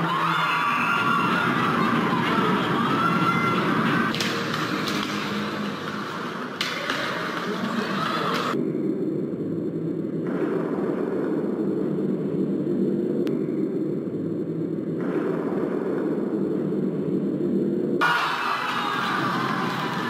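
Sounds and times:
muffled rumble: 0:07.7 - 0:18.0.

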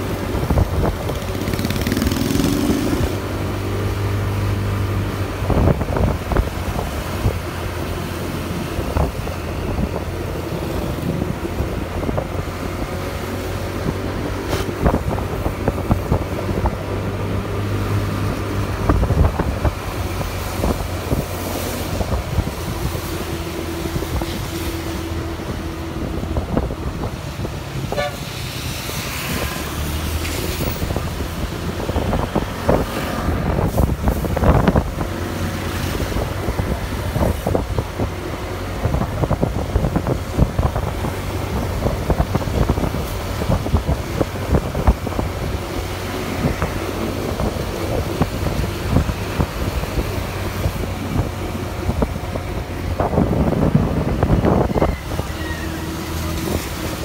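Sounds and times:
motorcycle engine drone: 0:00.0 - 0:28.2
road noise: 0:00.0 - 0:57.0
wind buffeting microphone: 0:00.0 - 0:57.0.

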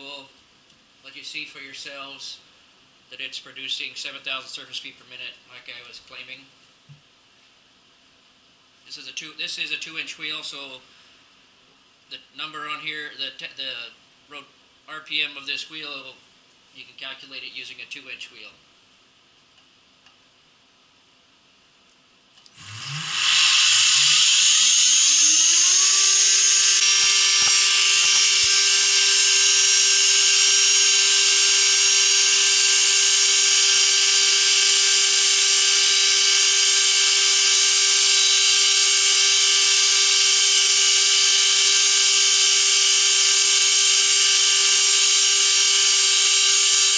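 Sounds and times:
motor whine rising: 0:22.5 - 0:46.9.

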